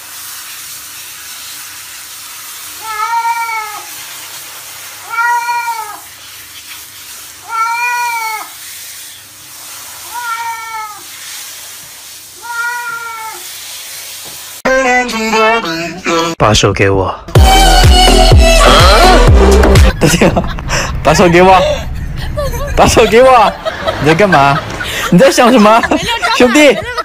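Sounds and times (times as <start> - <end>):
water spraying from shower head: 0.0 - 14.6, 23.2 - 27.0
cat meowing: 2.8 - 3.9, 5.0 - 6.1, 7.4 - 8.6, 10.0 - 11.1, 12.4 - 13.4.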